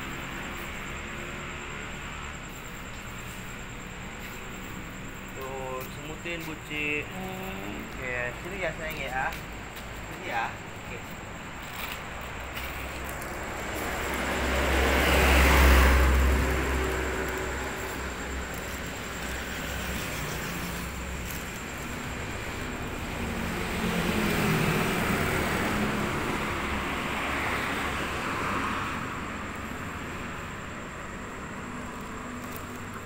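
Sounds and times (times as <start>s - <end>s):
road traffic passing: 0.0s - 33.0s.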